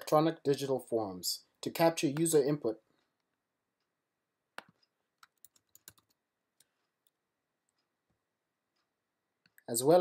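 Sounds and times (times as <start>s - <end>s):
faint keyboard typing: 4.6s - 8.2s.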